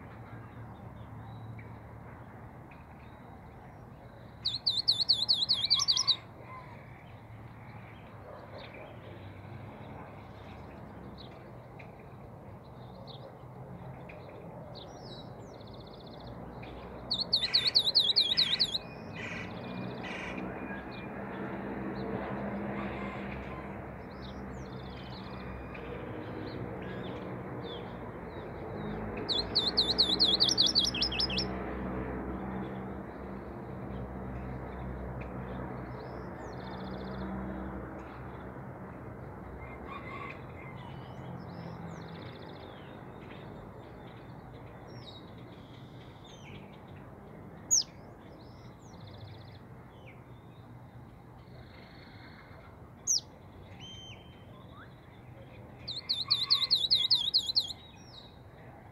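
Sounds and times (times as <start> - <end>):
songbird trilling: 4.5 - 6.2, 17.1 - 18.9, 29.3 - 31.5, 55.9 - 57.9.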